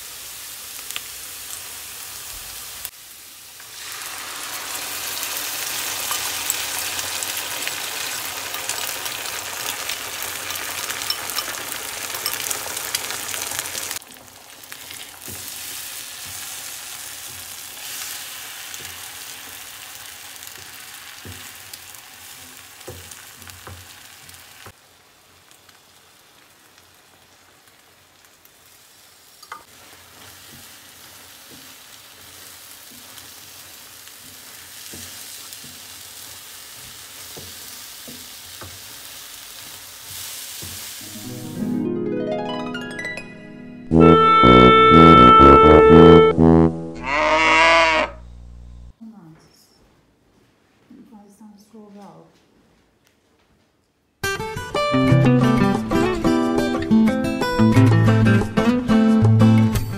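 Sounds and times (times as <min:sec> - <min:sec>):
eggs sizzling in frying pan: 0:00.0 - 0:41.5.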